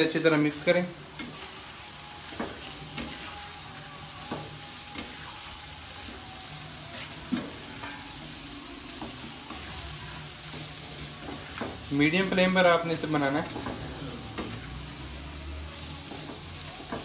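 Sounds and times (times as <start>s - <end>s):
food sizzling in a wok: 0.0s - 17.0s
spatula scraping and tapping pan: 1.1s - 3.5s, 8.9s - 14.8s.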